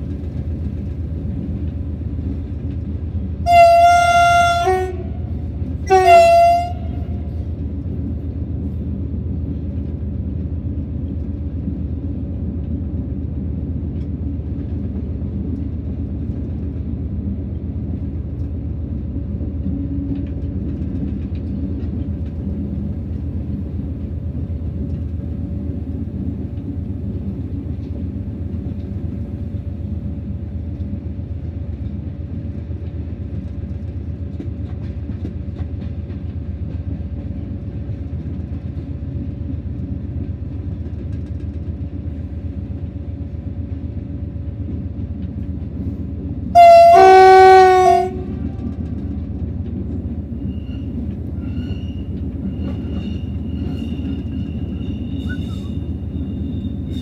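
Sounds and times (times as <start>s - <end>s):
locomotive rumbling: 0.0s - 57.0s
locomotive horn blasts: 3.5s - 7.4s, 46.5s - 48.7s.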